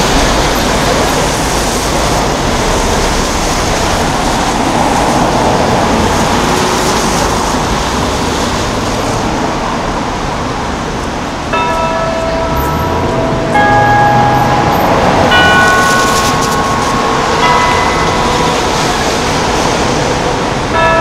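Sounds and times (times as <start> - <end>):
city street traffic: 0.0 - 21.0.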